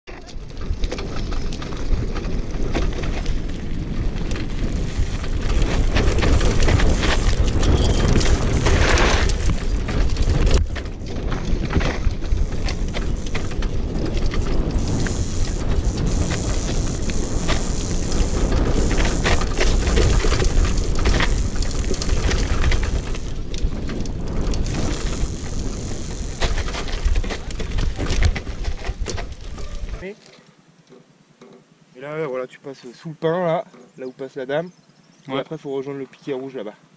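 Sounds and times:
stones and frame rattling: 0.1 - 30.0
tyres rolling on gravel: 0.1 - 30.2.

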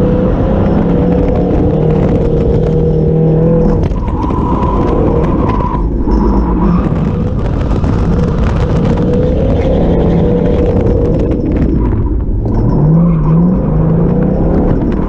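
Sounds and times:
car engine running hard: 0.0 - 15.0
tires skidding: 0.0 - 15.0.

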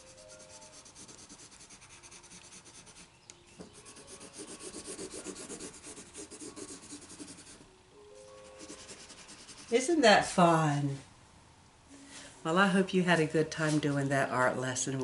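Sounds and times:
colored pencil shading on paper: 0.0 - 7.6, 8.3 - 10.0.

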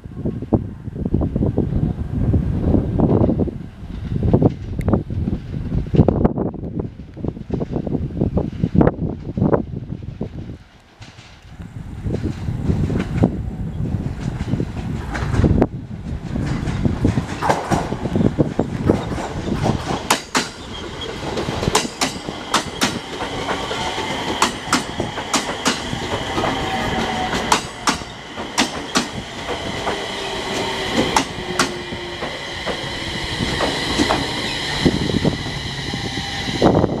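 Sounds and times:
train wheels clicking over rail joints: 14.0 - 35.8
train motor whine: 18.9 - 37.0
high brake squeal: 32.9 - 36.9.

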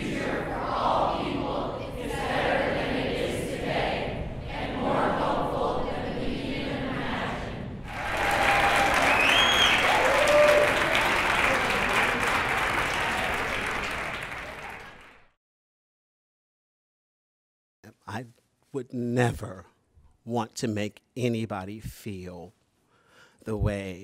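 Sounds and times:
crowd speaking in unison: 0.0 - 9.0
crowd clapping and cheering: 7.8 - 15.4.

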